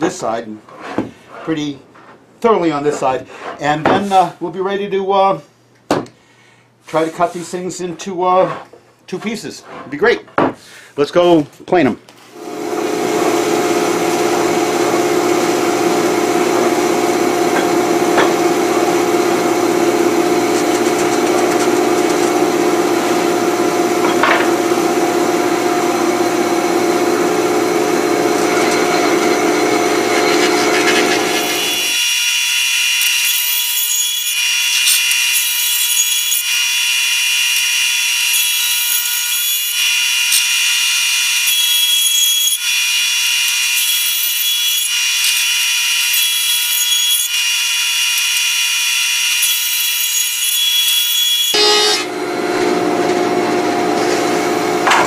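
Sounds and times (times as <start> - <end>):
thickness planer running: 12.3 - 55.0.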